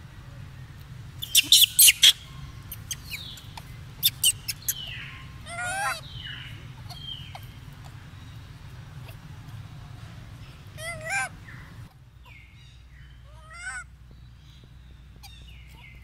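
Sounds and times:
monkeys squeaking: 1.2 - 7.9, 10.8 - 11.3.

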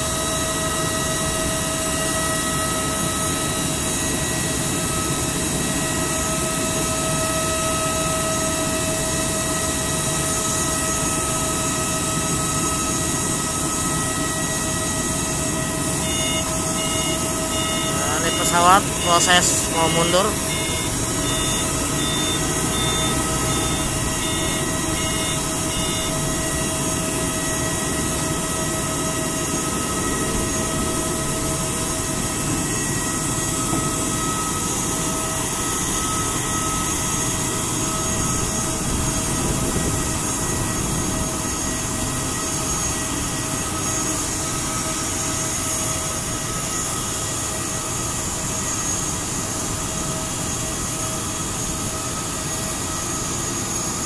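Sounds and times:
jet engine whine and rumble: 0.0 - 54.0
short beeps: 16.0 - 26.2.

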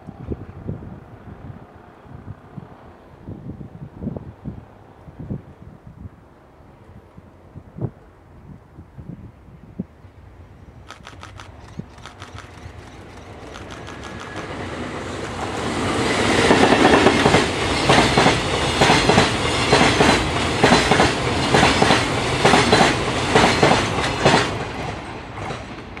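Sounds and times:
electric locomotive passing: 10.0 - 26.0
train wheels clattering over rail joints: 10.9 - 15.6, 16.4 - 26.0.

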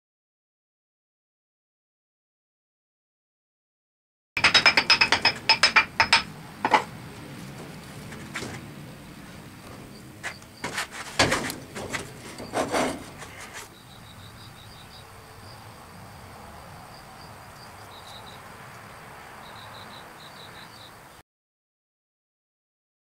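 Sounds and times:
faint high chirping: 13.4 - 21.2.

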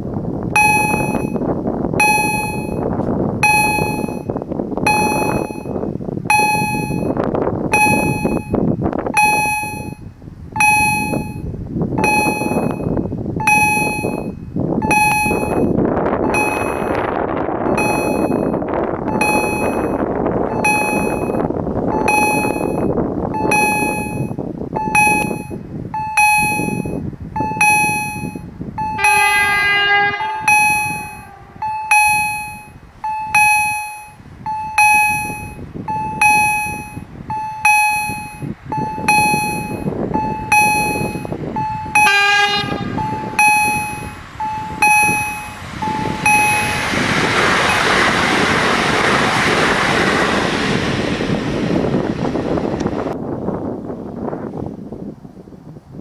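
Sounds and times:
steady rushing noise: 0.0 - 56.0
level crossing warning bells: 0.5 - 49.0
train horn blasts: 28.9 - 32.5, 41.8 - 47.0.

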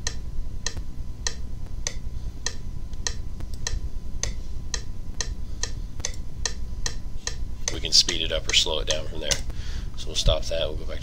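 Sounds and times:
metronome ticking: 0.0 - 9.6.

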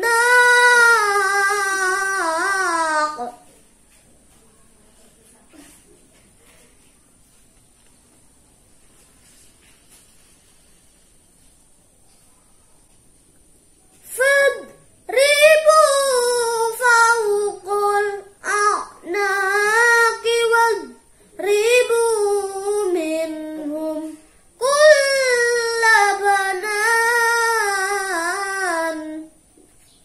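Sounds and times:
boy chanting recitation: 0.0 - 4.4, 13.9 - 29.8.

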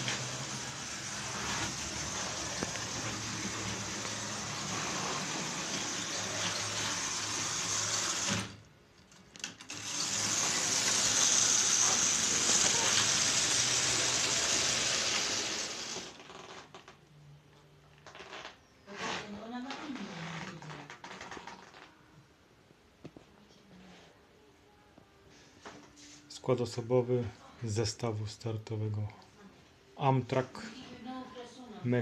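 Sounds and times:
model train motor whirring: 0.0 - 8.6, 9.6 - 16.2
wheels on rails: 9.7 - 16.1.

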